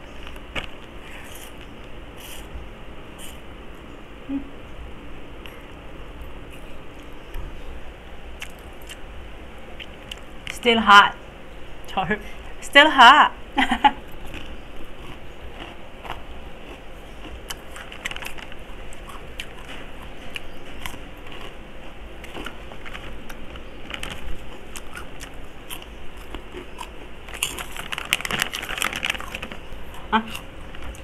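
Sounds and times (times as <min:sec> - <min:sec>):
crunching crispy snacks: 0:14.1 - 0:31.0
plastic snack bag crinkling: 0:17.5 - 0:21.6, 0:22.2 - 0:31.0.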